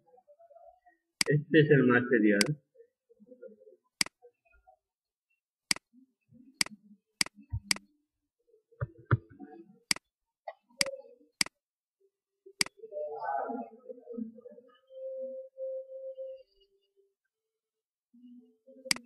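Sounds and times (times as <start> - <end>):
computer mouse clicking: 6.6 - 7.8.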